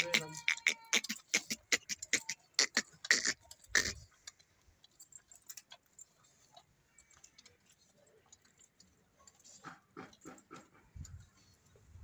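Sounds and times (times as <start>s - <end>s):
calf sucking and slurping: 0.2s - 4.1s.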